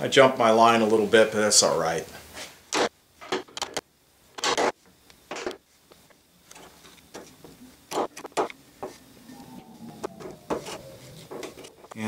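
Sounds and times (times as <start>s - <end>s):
chisel scraping wood: 10.2s - 12.0s.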